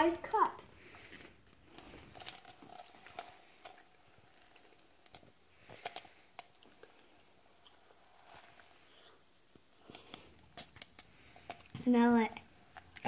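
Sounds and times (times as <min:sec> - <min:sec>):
styrofoam crackling and creaking: 0:00.0 - 0:13.0.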